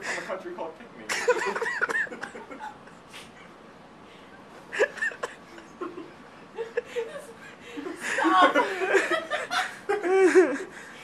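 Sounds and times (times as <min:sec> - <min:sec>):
people laughing and chuckling: 0:01.1 - 0:03.2, 0:04.7 - 0:11.0.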